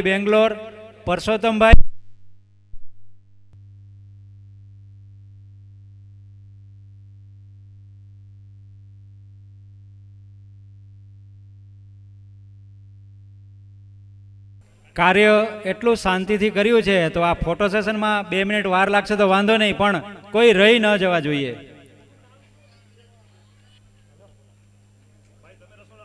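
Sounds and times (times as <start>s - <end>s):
low electrical hum: 0.0s - 26.0s.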